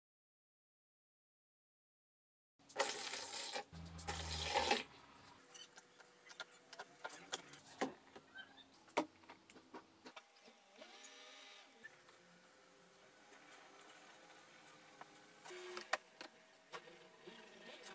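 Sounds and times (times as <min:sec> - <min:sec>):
powder pouring into water: 0:02.7 - 0:04.9.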